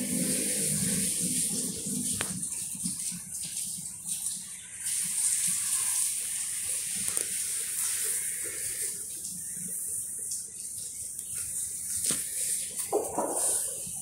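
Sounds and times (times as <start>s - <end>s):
high rushing hiss: 4.9s - 9.0s.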